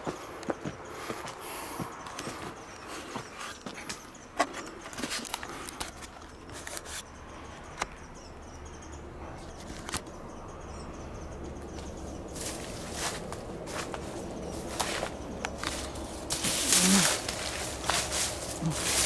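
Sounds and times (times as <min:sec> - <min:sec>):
footsteps on debris: 0:12.4 - 0:19.0.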